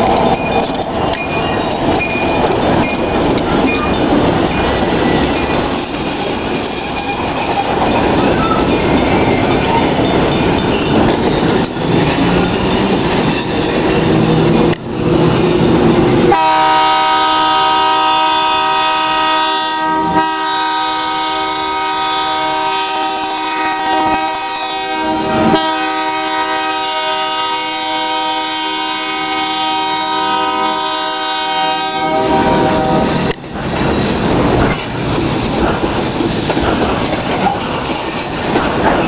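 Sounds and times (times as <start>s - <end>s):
rumble of passing train: 0.0s - 39.0s
locomotive air horn: 16.3s - 33.1s.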